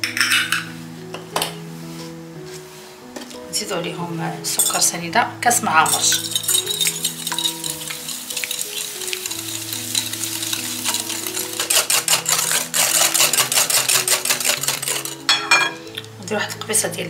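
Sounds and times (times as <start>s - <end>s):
soft background music: 0.0s - 17.0s
whisk scraping in a bowl: 6.0s - 15.3s.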